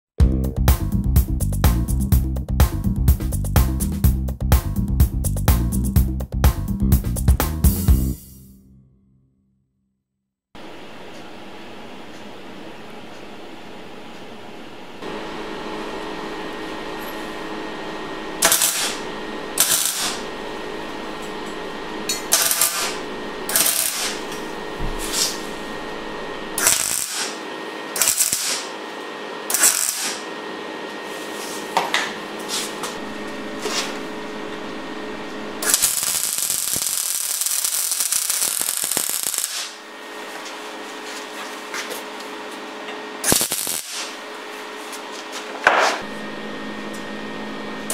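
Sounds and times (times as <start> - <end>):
steady hum: 10.6 - 47.9
arc welding bursts: 17.4 - 28.8, 29.5 - 30.3, 32.9 - 39.9, 43.2 - 44.2.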